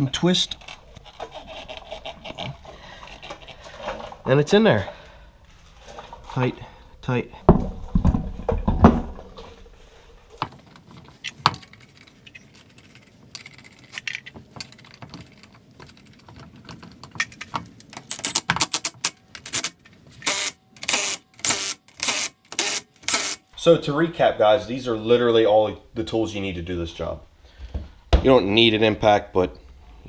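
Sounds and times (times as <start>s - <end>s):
thumps: 7.4s - 9.7s
metallic jangling rattle: 11.2s - 16.3s.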